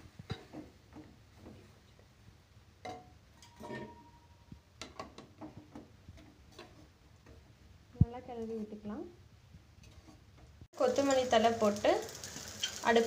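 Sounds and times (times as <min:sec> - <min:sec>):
metal ladle scraping a metal pan: 0:03.4 - 0:04.2.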